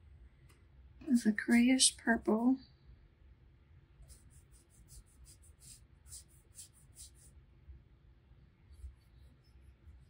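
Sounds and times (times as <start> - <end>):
brush strokes on paper: 4.0 - 7.4, 8.7 - 10.0.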